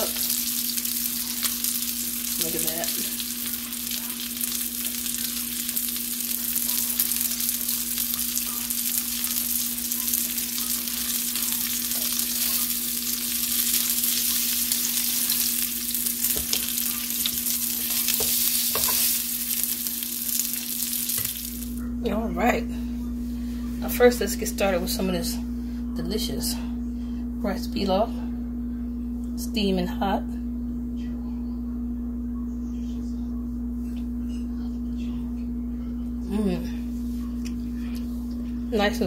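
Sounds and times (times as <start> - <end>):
meat sizzling in a frying pan: 0.0 - 21.8
steady low hum: 0.0 - 39.0.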